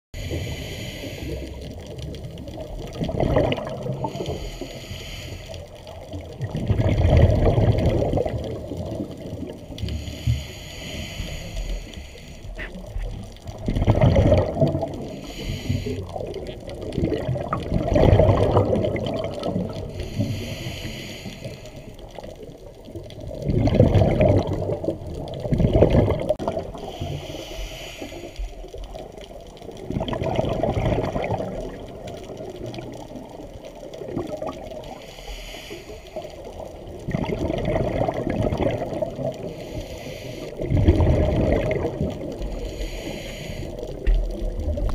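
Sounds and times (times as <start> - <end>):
regulator hiss: 0.2 - 1.6, 4.1 - 5.8, 9.9 - 12.6, 15.1 - 16.3, 19.9 - 22.2, 26.8 - 28.8, 34.9 - 36.6, 39.4 - 40.6, 42.5 - 44.1
exhaled bubbles rushing: 1.6 - 4.4, 5.9 - 10.0, 12.8 - 15.2, 15.8 - 20.2, 22.8 - 27.2, 29.0 - 35.0, 36.5 - 39.6, 40.5 - 42.8.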